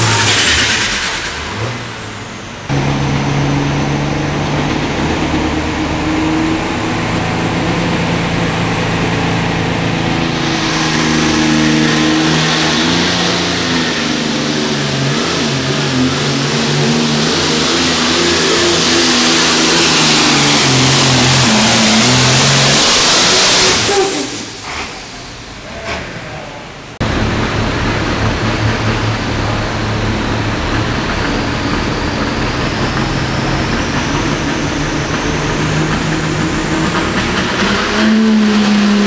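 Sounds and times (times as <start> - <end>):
tractor diesel engine running: 0.0 - 24.7, 26.9 - 39.0
high whine: 0.0 - 25.8.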